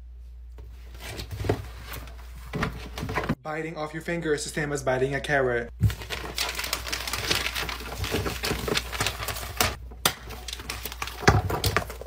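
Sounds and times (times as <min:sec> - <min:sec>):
paper and binders rustling: 0:00.6 - 0:03.4, 0:05.8 - 0:12.0.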